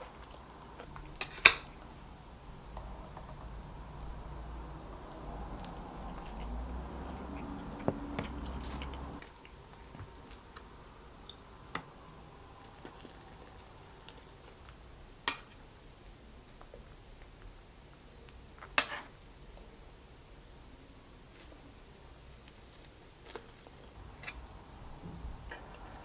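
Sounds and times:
soft eating sounds: 0.0 - 26.0.

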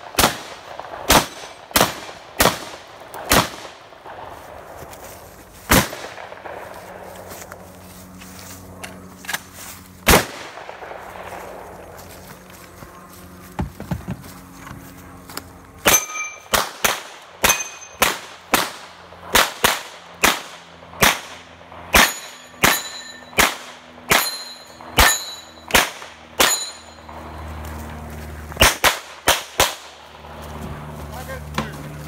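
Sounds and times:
pistol shots: 0.0 - 4.2, 5.7 - 6.7, 10.0 - 11.0, 15.8 - 26.9, 28.6 - 30.0
steel target ringing: 15.8 - 16.5, 17.4 - 18.1, 21.9 - 27.2.

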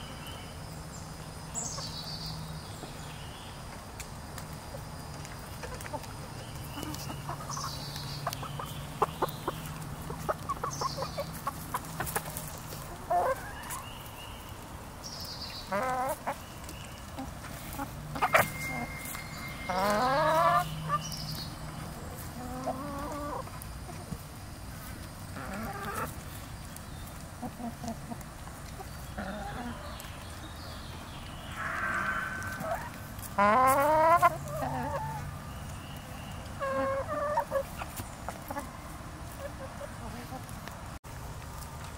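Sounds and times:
hens clucking: 3.6 - 14.7, 15.6 - 30.5, 31.1 - 40.8
hen warbling calls: 31.5 - 34.2.

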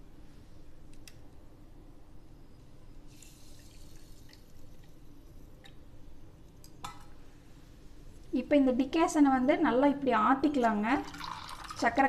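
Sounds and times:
coffee pouring into steel tumbler: 11.0 - 11.9.

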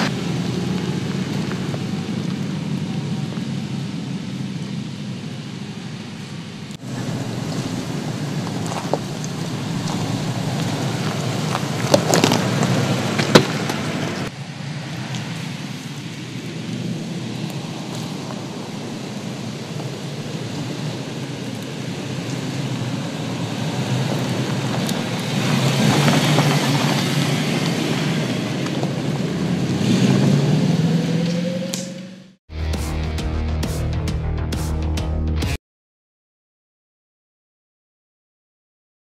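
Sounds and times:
tyres crunching on gravel: 0.0 - 2.7, 6.8 - 14.3, 22.4 - 30.0
vehicle engine running: 0.0 - 14.3.

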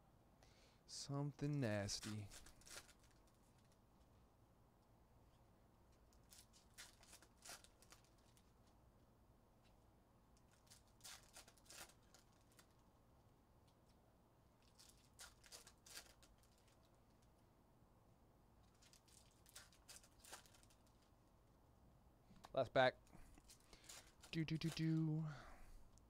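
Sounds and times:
foil wrappers tearing: 2.0 - 3.2, 6.2 - 8.4, 10.5 - 12.7, 14.6 - 16.8, 18.7 - 21.0.

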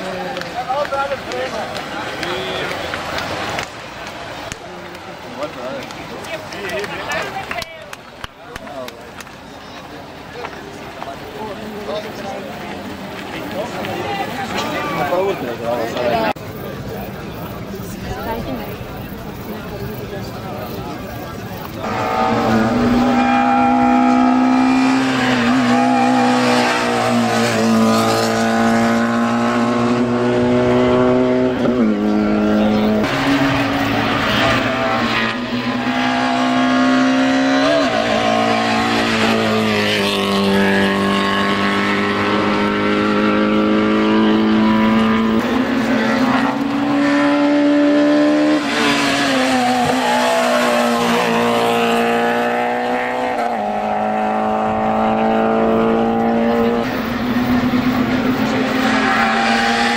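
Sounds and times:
race car engine revving: 21.8 - 59.9.

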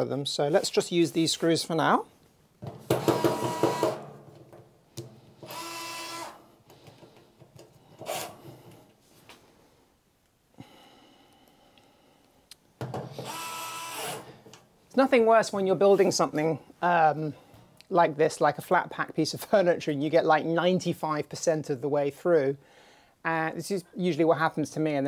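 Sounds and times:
electric screwdriver motor whine: 5.4 - 6.4, 13.2 - 14.2.

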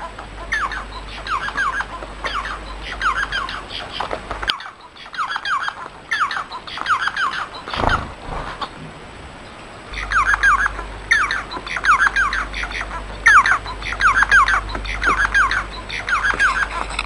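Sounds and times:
finch chirping: 0.0 - 8.1, 9.4 - 17.0.

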